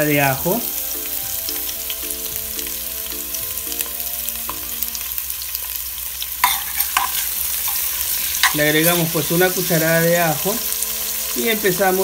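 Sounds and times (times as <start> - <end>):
onions sizzling in oil: 0.0 - 12.0
spoon scraping and knocking pot: 6.4 - 9.0.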